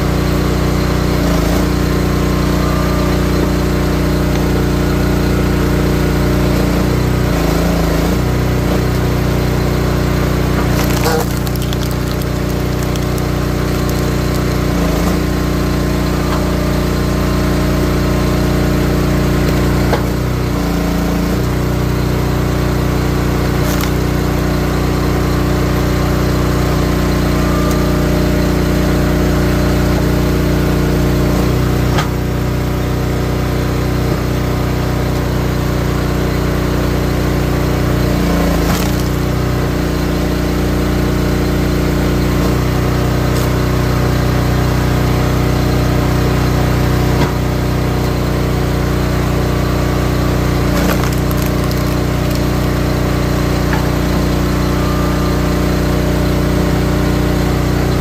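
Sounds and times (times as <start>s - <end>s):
log splitter engine running: 0.0s - 58.0s
wood cracking and splitting: 8.2s - 17.0s, 18.1s - 32.4s, 37.9s - 40.1s, 42.2s - 48.4s, 49.7s - 54.4s.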